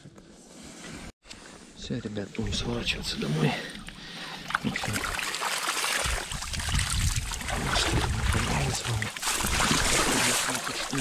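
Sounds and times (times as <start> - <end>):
water sloshing and splashing: 2.4 - 11.0.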